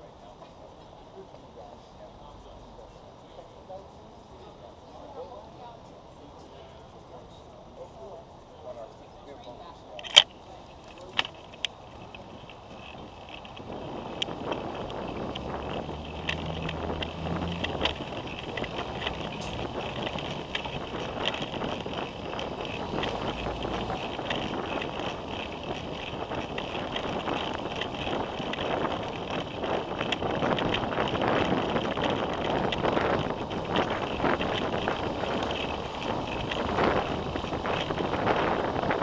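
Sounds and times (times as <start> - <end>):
traffic engine hum: 0.0 - 39.0
tyre and road noise: 0.0 - 39.0
bicycle clicks and rattles: 9.9 - 39.0
wind buffeting microphone: 11.0 - 39.0.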